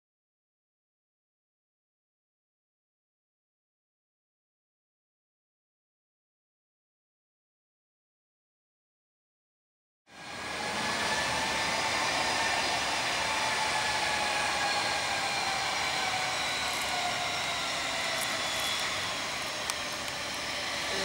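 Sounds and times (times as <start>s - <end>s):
jet engines whining at taxi power: 10.1s - 21.0s.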